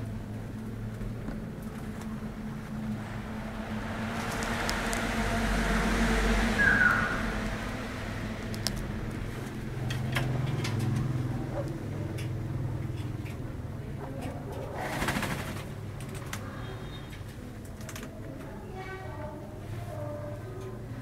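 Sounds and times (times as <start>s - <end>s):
vehicle engine rumble passing: 0.0s - 16.6s.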